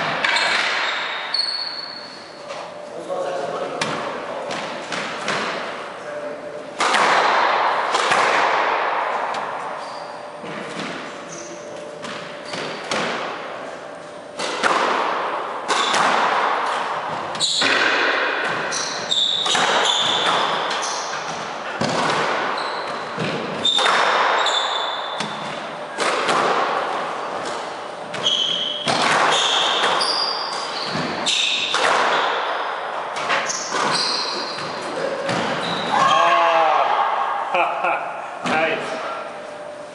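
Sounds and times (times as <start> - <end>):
squash ball hitting racquets and walls: 0.0 - 2.8, 3.5 - 37.5
shoes squeaking on wooden floor: 18.7 - 21.3, 22.5 - 25.4, 28.1 - 31.6, 33.4 - 34.9, 35.5 - 36.2.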